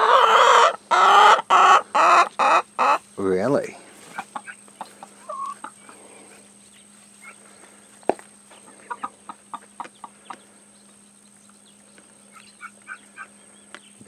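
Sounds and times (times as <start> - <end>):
hens clucking: 0.0 - 14.0.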